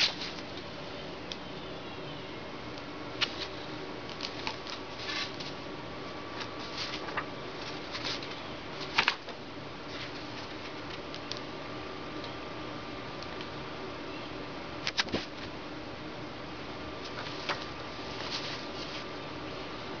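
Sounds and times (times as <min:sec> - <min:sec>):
paper rustling and crinkling: 0:00.0 - 0:00.5, 0:03.2 - 0:05.6, 0:06.3 - 0:11.2, 0:14.9 - 0:15.5, 0:17.0 - 0:19.2
low background hum: 0:00.0 - 0:20.0.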